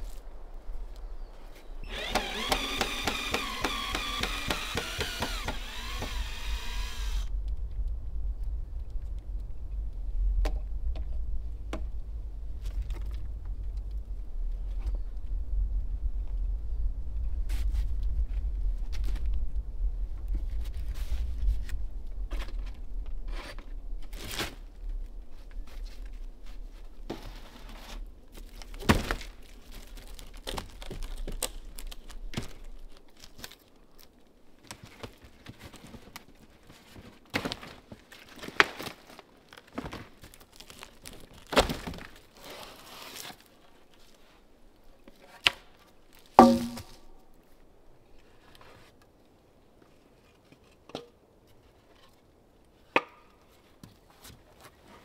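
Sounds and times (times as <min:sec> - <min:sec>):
low rumble: 0:05.7 - 0:20.4
wood knocking: 0:46.4 - 0:47.0.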